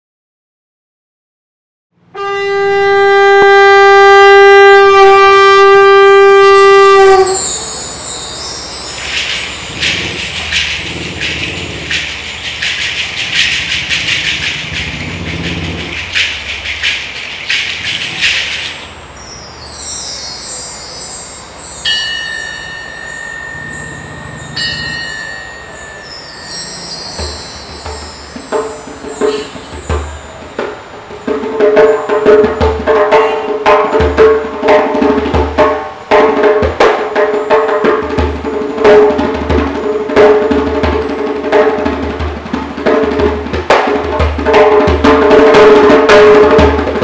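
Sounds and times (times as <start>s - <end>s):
conch shell blown: 2.1s - 8.0s
hand cymbals ringing: 6.3s - 40.8s
bar chimes shimmering run: 6.8s - 15.2s, 15.8s - 32.8s.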